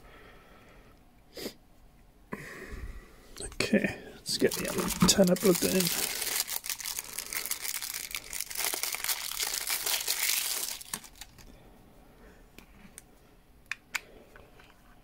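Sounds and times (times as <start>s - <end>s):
plastic bag crinkling: 4.3s - 11.5s.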